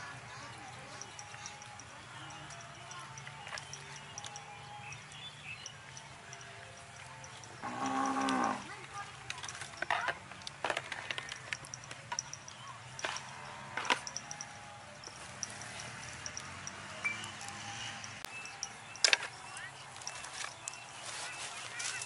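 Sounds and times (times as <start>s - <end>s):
cow mooing: 7.6s - 8.7s
plastic bowl and basket rattling: 7.8s - 14.3s.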